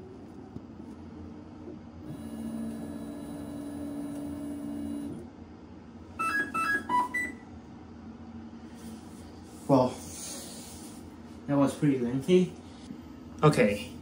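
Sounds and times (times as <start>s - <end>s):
printer motors humming and whining: 2.0s - 5.3s.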